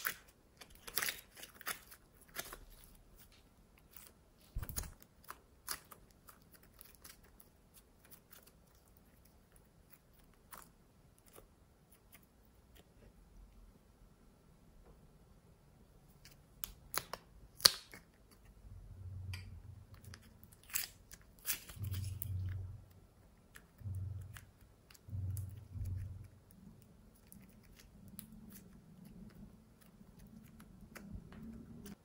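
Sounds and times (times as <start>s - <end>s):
squishy clay kneaded by hand: 0.0s - 13.3s, 16.0s - 32.0s.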